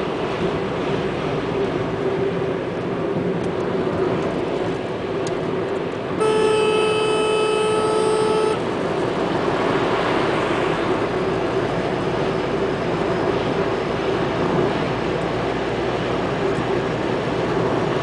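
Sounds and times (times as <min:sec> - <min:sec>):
car road and engine noise: 0:00.0 - 0:18.0
vehicle horn blast: 0:06.2 - 0:08.7.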